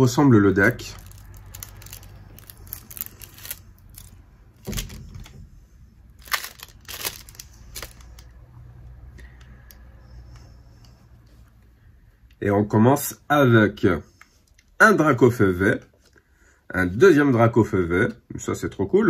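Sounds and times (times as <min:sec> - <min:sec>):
plastic wrapping crinkling: 0:00.6 - 0:05.4, 0:06.0 - 0:08.4
trading cards being handled: 0:00.7 - 0:05.3, 0:06.1 - 0:08.4.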